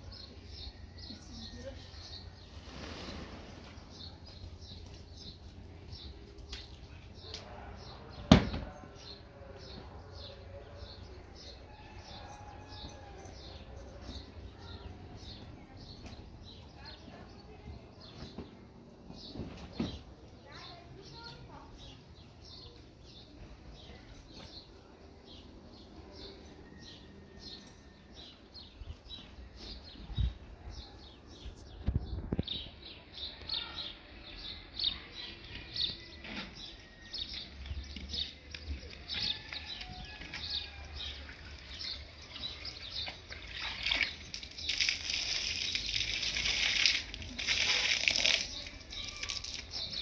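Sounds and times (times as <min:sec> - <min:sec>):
water sloshing and splashing: 0:41.2 - 0:49.7.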